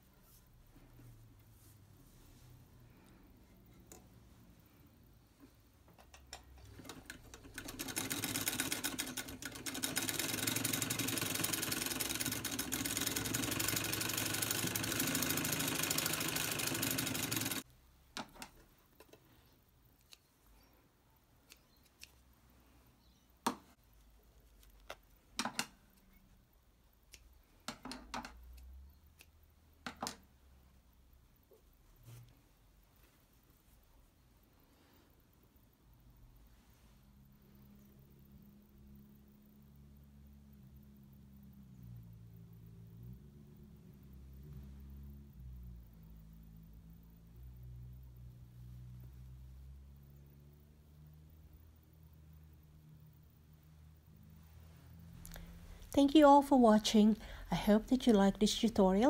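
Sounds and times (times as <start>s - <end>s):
sewing machine stitching: 6.6s - 17.6s.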